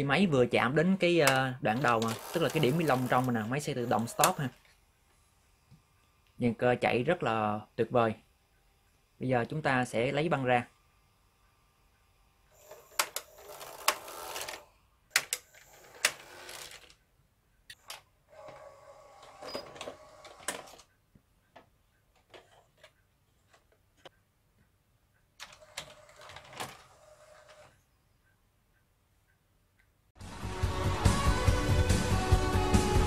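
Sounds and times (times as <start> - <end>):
motor whirring: 12.5 - 14.6, 15.3 - 16.9, 18.3 - 20.9.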